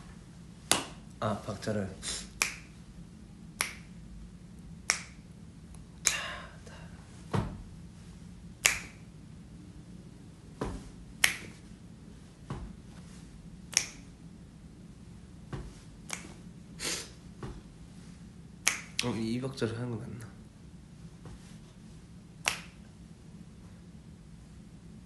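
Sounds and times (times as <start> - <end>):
finger snaps: 2.3 - 2.8, 3.6 - 4.0, 4.8 - 6.4, 8.6 - 9.1, 11.2 - 11.6, 13.7 - 14.1, 16.0 - 16.4, 18.6 - 19.1, 22.4 - 22.9.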